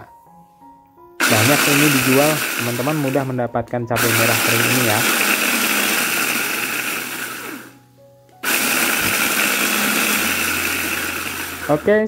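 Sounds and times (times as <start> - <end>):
electric food chopper grinding: 1.2 - 3.4, 4.0 - 7.8, 8.4 - 12.0.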